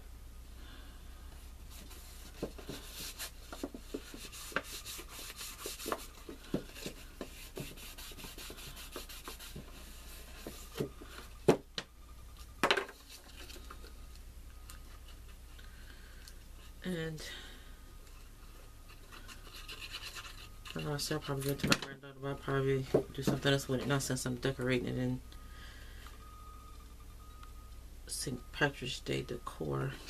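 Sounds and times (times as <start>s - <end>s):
cardstock rubbing and rustling: 1.7s - 11.6s, 18.8s - 21.7s.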